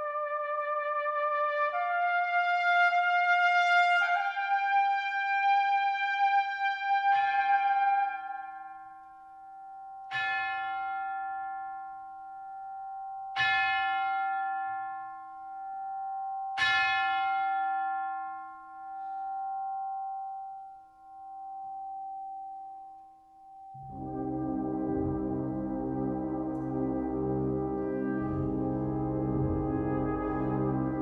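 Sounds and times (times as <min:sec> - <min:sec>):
brass band chord: 0:23.8 - 0:31.0.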